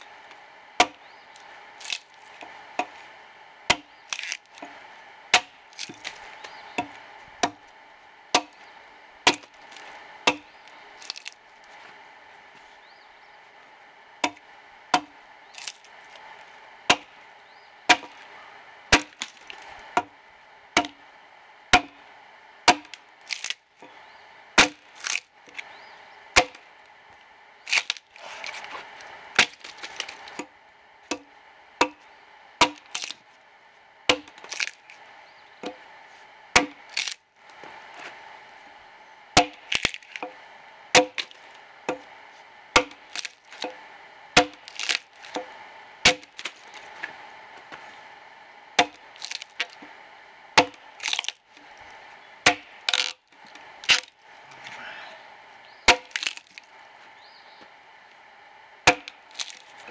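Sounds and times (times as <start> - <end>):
wood crackling: 0.0 - 20.2, 22.7 - 59.9
axe chopping log: 0.8 - 1.0, 3.7 - 4.7, 5.3 - 7.6, 8.3 - 8.6, 9.2 - 9.6, 10.2 - 11.3, 14.2 - 15.8, 16.9 - 17.2, 17.9 - 18.2, 18.9 - 20.1, 20.8 - 21.0, 21.7 - 22.0, 22.7 - 23.6, 24.6 - 25.2, 26.4 - 26.6, 29.4 - 30.5, 31.1 - 33.2, 34.1 - 34.8, 36.6 - 37.2, 39.4 - 40.4, 41.0 - 42.1, 42.7 - 43.8, 44.4 - 46.9, 48.8 - 49.9, 50.6 - 51.4, 52.4 - 53.2, 55.9 - 56.6, 58.8 - 59.9.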